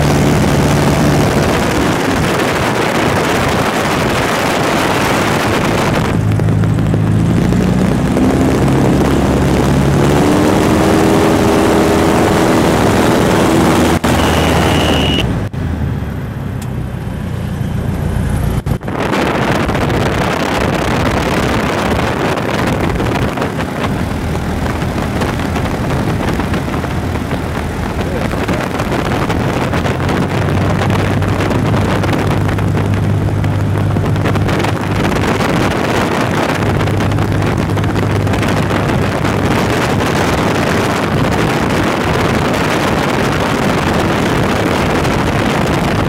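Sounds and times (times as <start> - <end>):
wind rush: 0.0 - 15.6, 18.0 - 46.0
airplane engine and propeller: 0.0 - 46.0.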